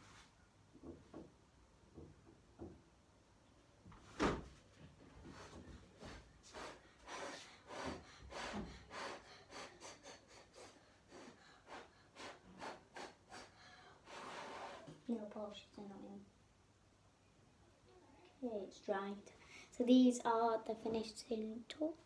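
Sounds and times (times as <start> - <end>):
short puffs of breath: 5.2 - 15.0.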